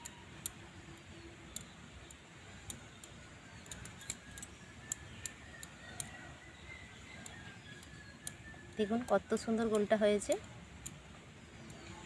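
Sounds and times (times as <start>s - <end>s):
faint sharp clicks: 0.0s - 6.2s, 7.2s - 9.1s, 9.7s - 11.0s.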